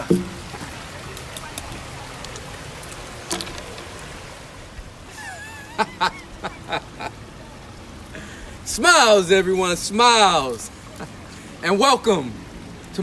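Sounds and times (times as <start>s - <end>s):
background hiss: 0.0s - 13.0s
man laughing: 5.0s - 7.2s.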